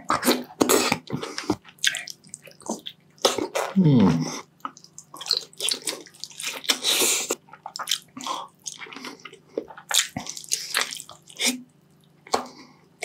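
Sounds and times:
man chewing wetly: 0.0 - 3.8, 4.4 - 12.7
faint steady hum: 0.0 - 13.0.

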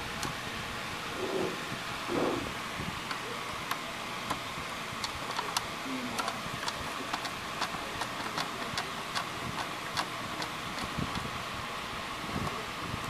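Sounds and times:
steady background noise: 0.0 - 13.0.

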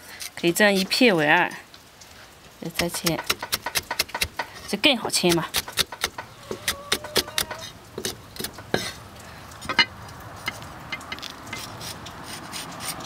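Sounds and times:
cleaver chopping on wood: 2.8 - 4.5, 5.3 - 8.9.

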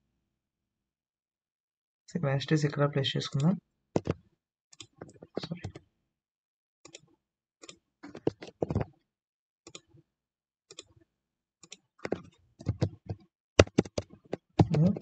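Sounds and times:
keyboard keystrokes: 12.0 - 15.0.

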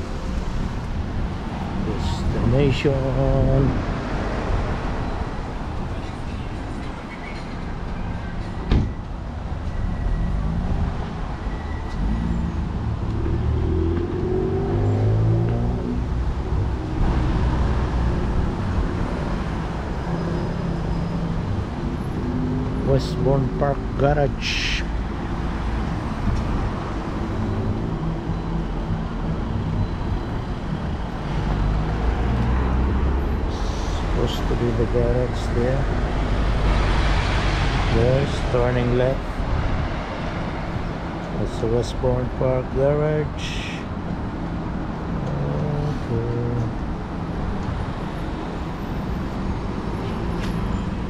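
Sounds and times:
road traffic passing: 0.0 - 51.0
bus driving by: 24.4 - 41.6.

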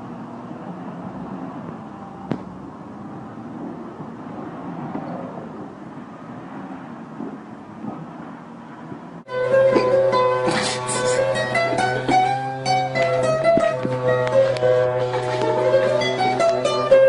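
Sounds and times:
truck engine running: 5.5 - 17.0.

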